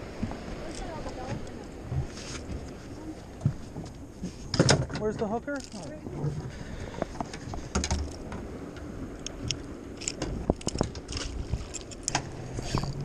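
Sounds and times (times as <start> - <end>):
fishing tackle clicks and knocks: 4.5 - 6.0, 6.9 - 13.0.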